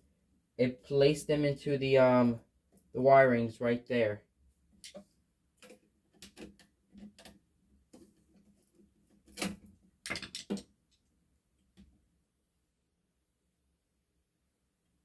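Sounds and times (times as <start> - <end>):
metal plate and wires clicking: 5.6 - 10.7.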